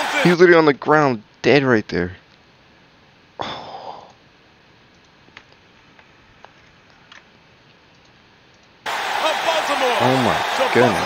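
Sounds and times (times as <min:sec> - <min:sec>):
computer mouse clicks: 0:07.9 - 0:08.8.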